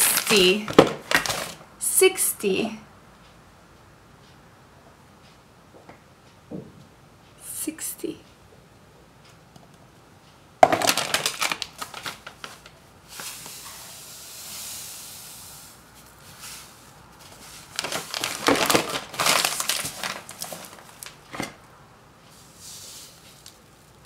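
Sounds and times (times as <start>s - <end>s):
plastic bag crinkling: 0.0s - 1.6s, 10.6s - 13.5s, 16.0s - 21.6s.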